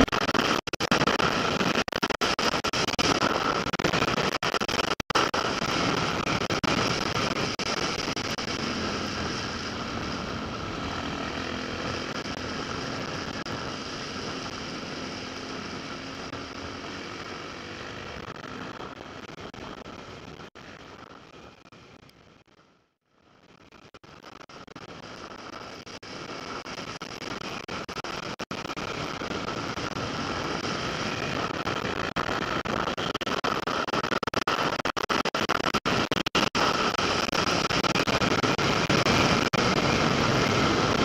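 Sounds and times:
motorcycle engine running: 0:05.4 - 0:20.3.

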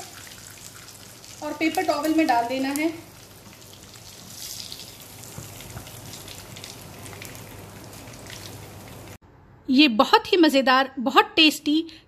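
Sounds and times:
hot oil sizzling in a pan: 0:00.0 - 0:09.2.

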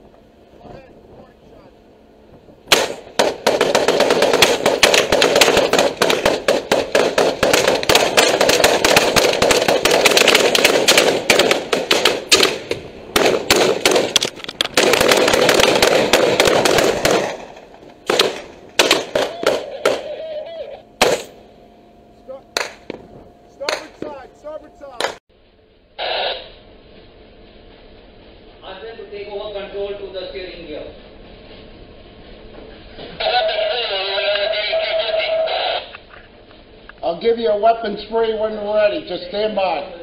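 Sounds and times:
rapid rifle fire: 0:02.7 - 0:20.1, 0:21.0 - 0:21.3.

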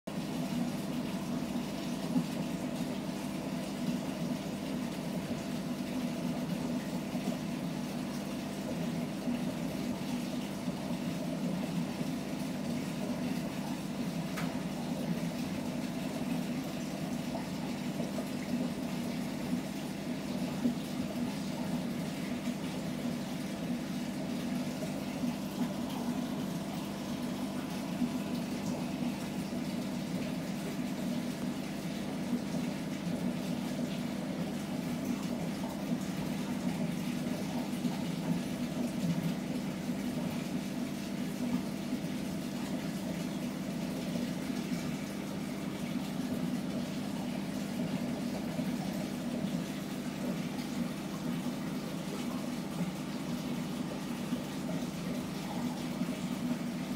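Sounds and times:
aquarium filter pump humming: 0:00.1 - 0:56.9
water trickling and bubbling: 0:00.2 - 0:56.9.

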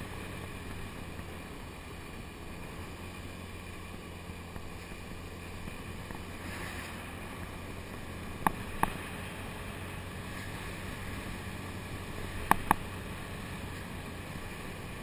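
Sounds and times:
motor scooter engine cruising: 0:00.0 - 0:15.0
wind and road noise: 0:00.0 - 0:15.0
sharp clicks: 0:12.4 - 0:12.8.

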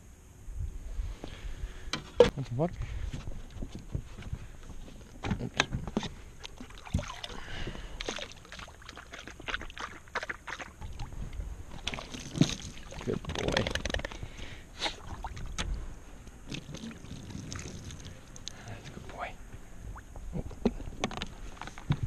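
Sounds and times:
clicks and knocks aboard boat: 0:03.5 - 0:06.7, 0:20.5 - 0:22.0
water lapping against boat hull: 0:04.6 - 0:15.8.

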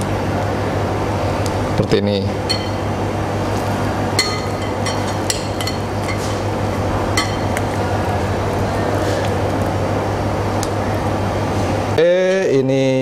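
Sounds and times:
metal spoon clinking on bowl: 0:02.5 - 0:02.9, 0:04.2 - 0:07.8.

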